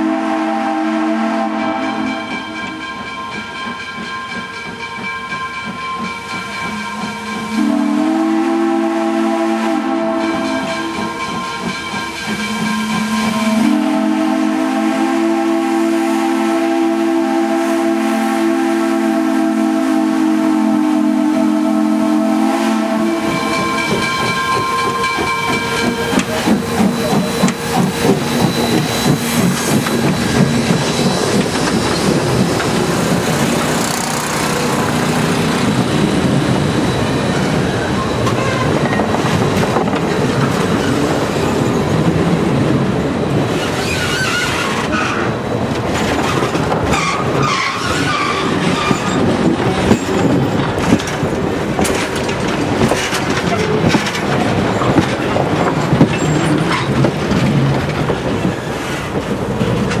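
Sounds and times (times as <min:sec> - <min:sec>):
steam whistle blasts: 0:00.0 - 0:02.9, 0:06.7 - 0:11.7, 0:12.4 - 0:31.1
locomotive running gear beat: 0:00.1 - 1:00.0.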